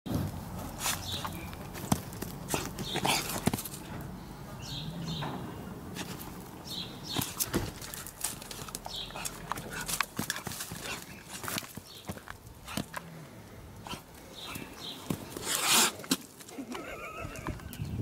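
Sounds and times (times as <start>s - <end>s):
scuffling on dirt: 0.1s - 4.1s, 5.2s - 13.1s
sharp clicks on dirt: 0.1s - 4.1s, 5.1s - 13.2s, 13.8s - 17.9s.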